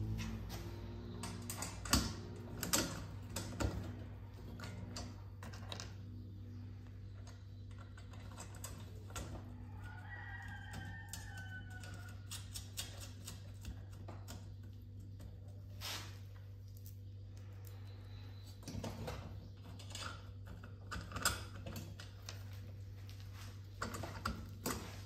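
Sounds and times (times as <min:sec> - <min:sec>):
low hum: 0:00.0 - 0:09.7.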